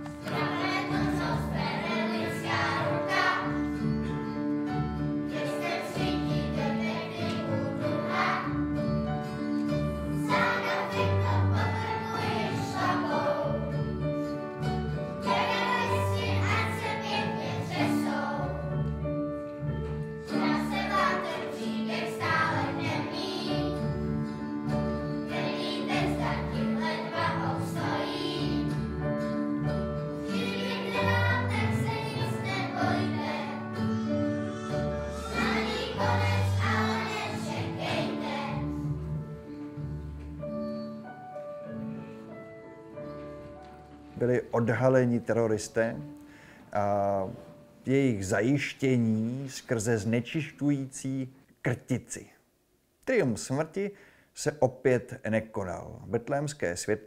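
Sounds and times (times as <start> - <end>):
children's choir singing: 0.0 - 19.1, 20.2 - 41.8
keyboard: 0.0 - 48.6.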